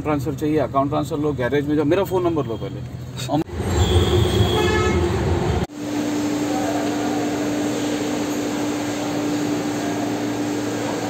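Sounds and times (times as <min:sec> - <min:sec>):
steady machine drone: 0:03.5 - 0:11.0.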